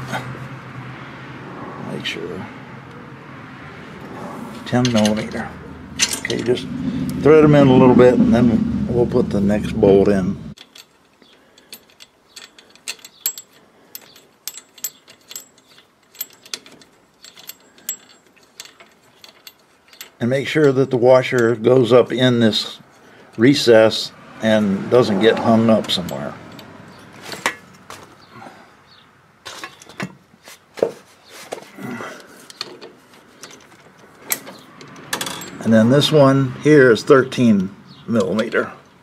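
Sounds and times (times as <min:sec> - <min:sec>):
wrench clicking: 0:10.6 - 0:21.6.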